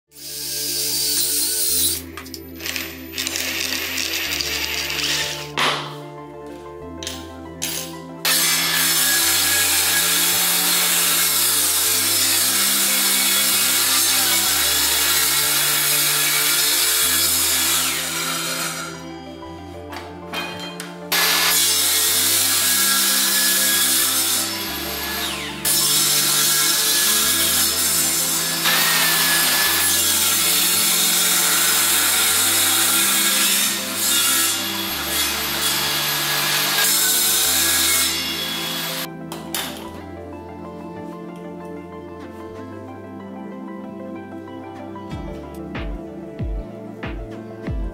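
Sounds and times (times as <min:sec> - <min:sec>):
table saw cutting wood: 0:00.1 - 0:06.0, 0:07.6 - 0:40.0
background music: 0:00.1 - 0:47.9.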